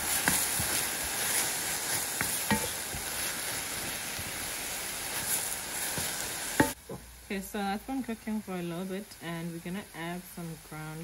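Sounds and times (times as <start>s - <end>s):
wooden spoon scraping a pan: 0.0s - 6.8s
paste sizzling in a pan: 0.0s - 11.0s.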